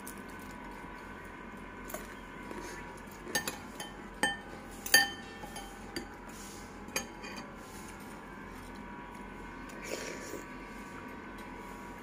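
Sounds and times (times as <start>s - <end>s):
cutlery clinking on ceramic bowl: 3.3s - 6.2s.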